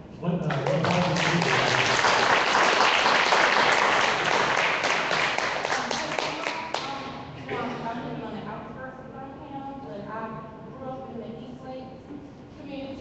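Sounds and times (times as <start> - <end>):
audience applauding: 0.4 - 6.9.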